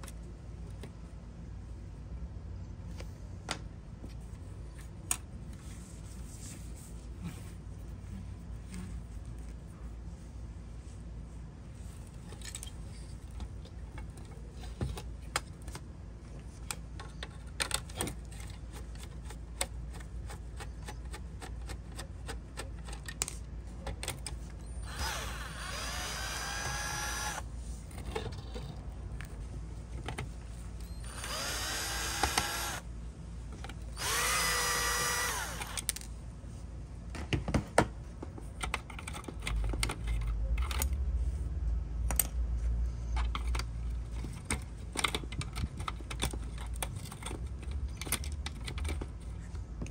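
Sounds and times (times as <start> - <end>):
small parts clicking and tapping: 16.5 - 29.3, 30.0 - 32.8, 38.3 - 41.0, 43.1 - 49.9
power driver whining: 24.8 - 27.4, 31.0 - 32.9, 33.9 - 35.9.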